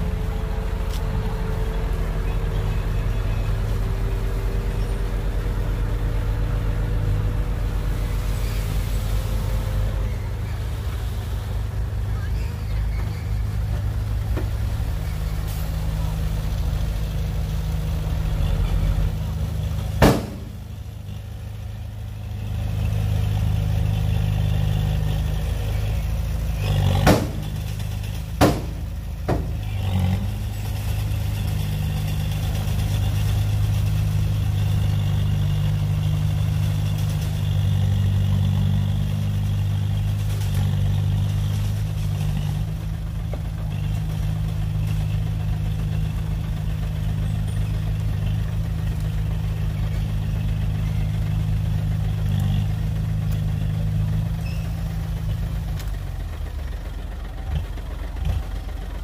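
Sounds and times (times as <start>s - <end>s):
heavy diesel engine running: 0.0s - 59.0s
sharp knocks: 28.4s - 29.5s.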